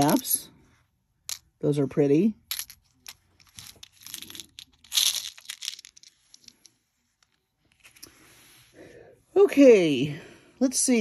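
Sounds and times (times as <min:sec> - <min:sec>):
beads clicking and rattling: 0:02.4 - 0:08.1.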